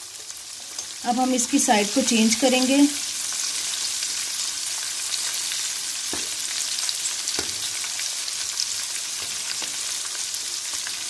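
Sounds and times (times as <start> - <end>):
chicken sizzling in hot oil: 0.0 - 11.0
spoon knocking in pan: 6.1 - 6.5, 7.3 - 7.7.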